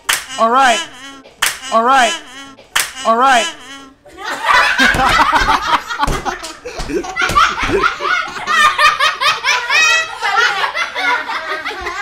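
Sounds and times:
man laughing: 0:00.3 - 0:09.4
girls laughing: 0:03.4 - 0:12.0.

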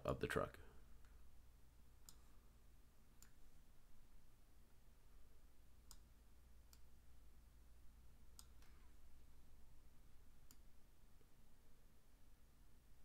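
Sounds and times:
low steady hum: 0:00.0 - 0:13.0
faint computer mouse clicks: 0:02.0 - 0:02.3, 0:08.3 - 0:08.8.

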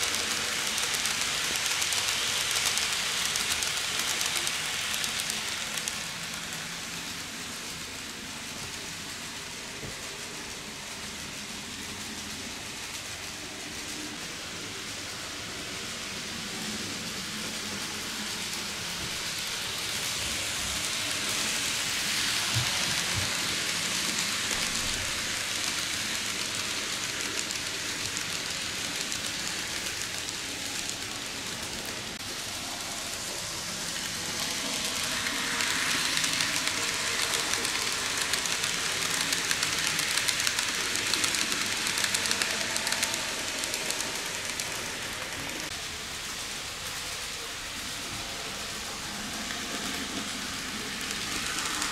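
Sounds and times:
model train running on track: 0:00.0 - 0:51.9.

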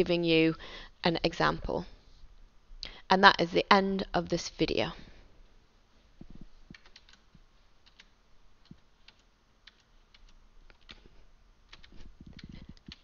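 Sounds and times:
keyboard and mouse clicks: 0:06.7 - 0:11.1, 0:11.7 - 0:13.0.

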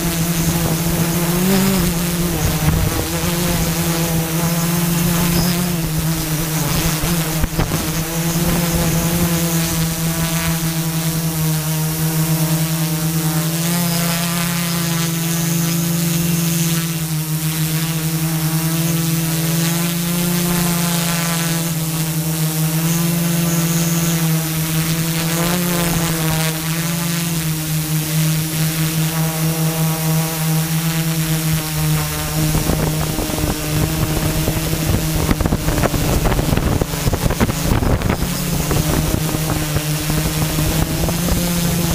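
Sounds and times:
wind buffeting microphone: 0:00.0 - 0:10.6, 0:31.7 - 0:41.9
drone propellers whining: 0:00.0 - 0:41.9.

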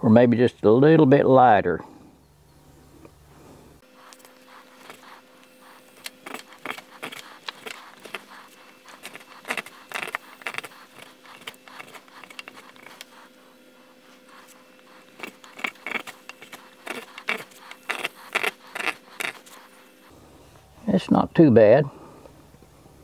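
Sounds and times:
spokeshave scraping wood: 0:03.8 - 0:20.7.

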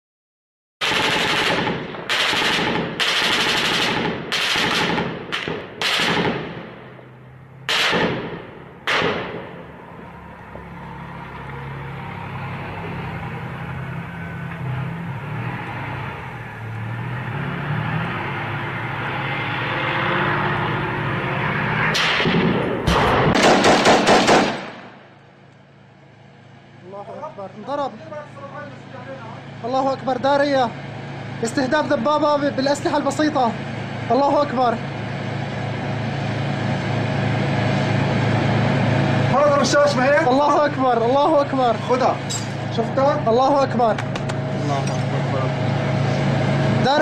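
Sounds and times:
loud gunshots with echoes: 0:00.8 - 0:06.9, 0:07.7 - 0:09.6, 0:22.0 - 0:25.0
machine-gun fire: 0:00.8 - 0:06.9, 0:07.7 - 0:09.6, 0:22.0 - 0:25.0.

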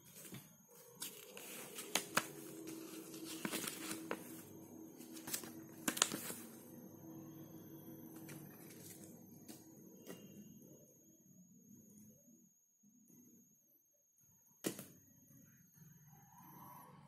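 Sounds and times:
paper rustling and crackling: 0:00.0 - 0:06.6, 0:08.2 - 0:09.2
faint steady hum: 0:00.0 - 0:17.0.

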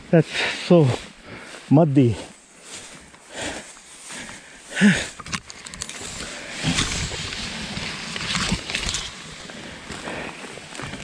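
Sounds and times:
tall grass rustling: 0:00.0 - 0:11.0.

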